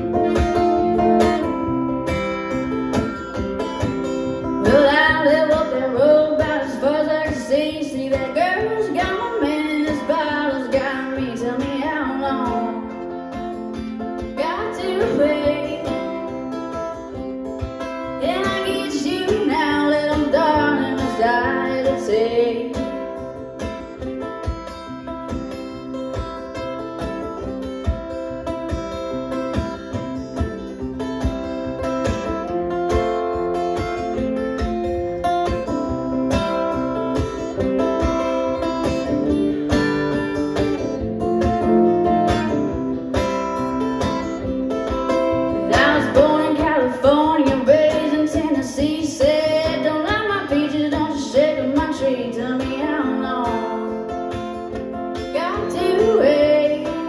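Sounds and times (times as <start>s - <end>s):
acoustic guitar strumming: 0.0s - 57.0s
woman singing: 4.4s - 23.8s, 45.3s - 57.0s.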